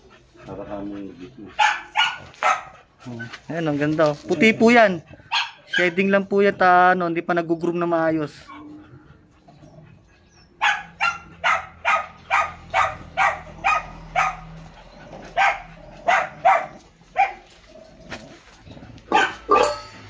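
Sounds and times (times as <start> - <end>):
dog barking: 1.6 - 2.8, 5.3 - 6.1, 10.6 - 14.6, 15.3 - 17.5, 19.1 - 19.9.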